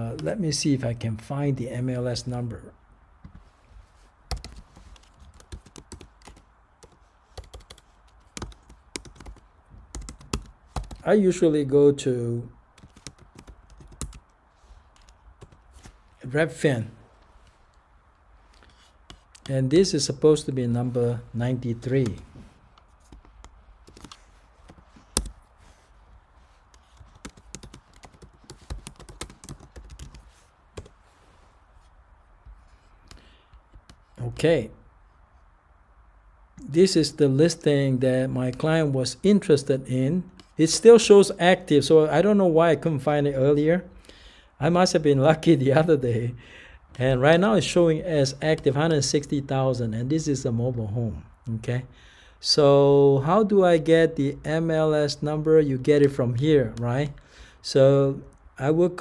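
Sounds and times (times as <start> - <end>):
keyboard typing: 4.3 - 11.0, 12.8 - 14.3, 23.0 - 25.4, 26.7 - 30.2.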